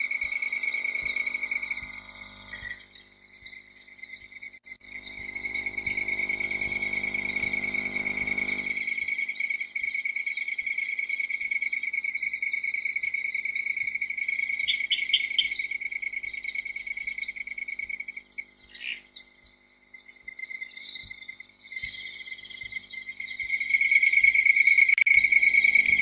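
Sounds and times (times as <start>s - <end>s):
crickets trilling: 0.0s - 26.0s
low hum with overtones: 0.0s - 26.0s.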